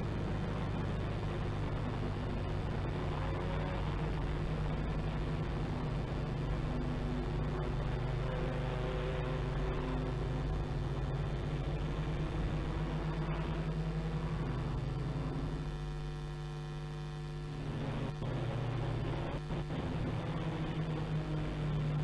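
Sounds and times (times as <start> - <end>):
race car engines: 0.0 - 15.7, 17.6 - 22.0
steady low hum: 0.0 - 22.0.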